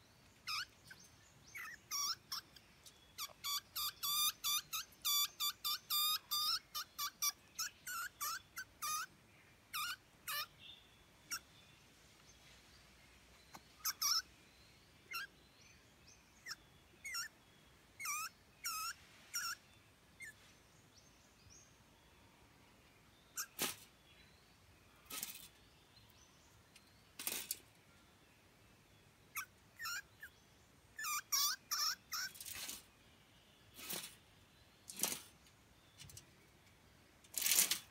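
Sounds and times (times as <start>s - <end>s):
rodent squeaking: 0.4s - 9.1s, 9.7s - 10.5s, 13.8s - 14.3s, 15.1s - 15.3s, 16.4s - 17.4s, 18.0s - 19.6s, 20.2s - 20.4s, 23.4s - 23.8s, 29.3s - 30.3s, 31.0s - 32.8s.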